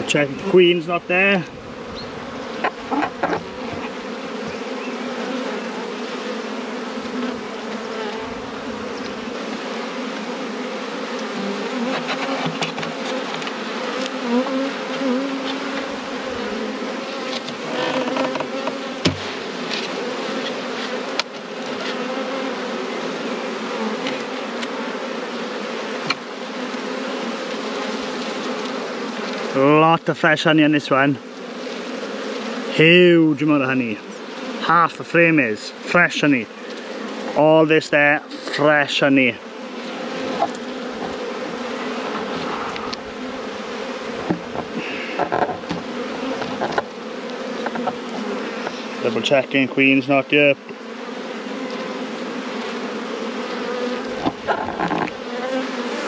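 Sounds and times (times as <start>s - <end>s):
honeybees buzzing: 0.0s - 56.0s
wooden frames knocking on box: 44.2s - 46.9s.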